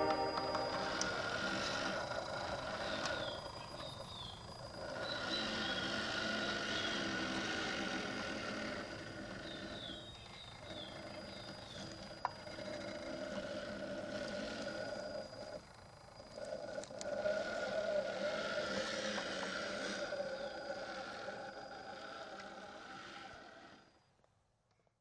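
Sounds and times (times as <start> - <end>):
small electric motor whining: 0.0 - 24.2
birds chirping: 9.2 - 12.0.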